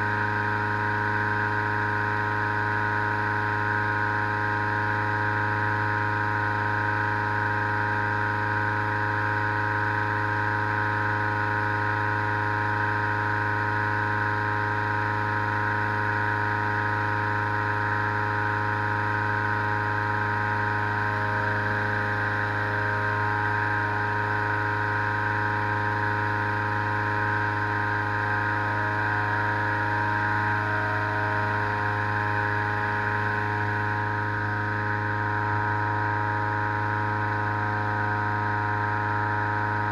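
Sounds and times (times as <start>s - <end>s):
petrol engine fan running: 0.0s - 39.9s.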